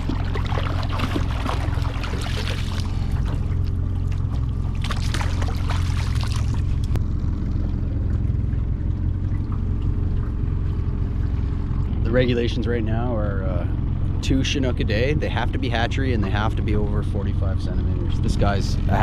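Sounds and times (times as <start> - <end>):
water splashing and trickling: 0.0 - 12.0
boat motor droning: 0.0 - 19.0.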